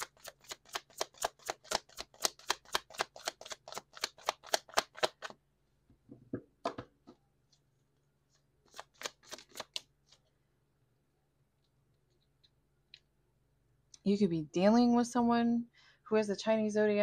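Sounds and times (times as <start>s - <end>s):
cards being shuffled: 0.0s - 5.4s, 8.3s - 10.3s
knocks of cards handled: 0.1s - 5.4s.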